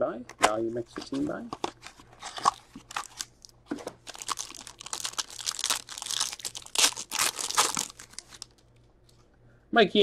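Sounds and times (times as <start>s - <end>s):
foil wrapper crinkling and tearing: 1.8s - 8.6s.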